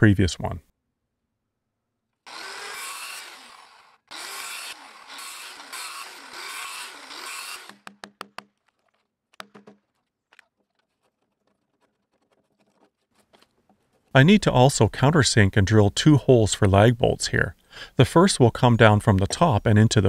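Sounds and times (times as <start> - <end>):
circular saw cutting wood: 2.2 - 7.9
sharp wooden knocks: 6.7 - 10.1.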